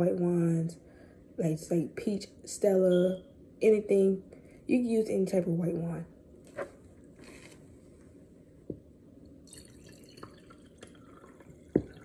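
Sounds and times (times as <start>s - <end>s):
wine pouring into glass over ice: 9.4s - 12.0s.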